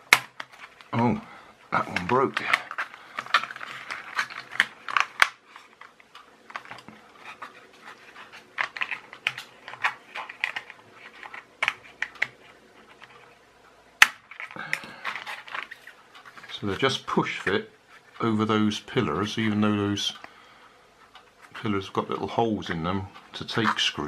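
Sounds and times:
sharp plastic snap: 0:00.1 - 0:00.5
plastic clicks and creaks: 0:01.8 - 0:13.3, 0:20.1 - 0:20.4.

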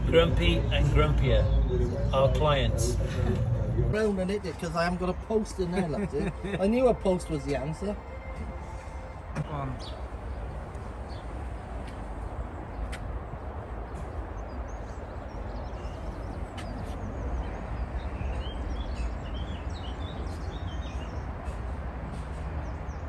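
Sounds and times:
steady low rumble: 0:00.0 - 0:06.6
small birds chirping: 0:09.4 - 0:23.0.

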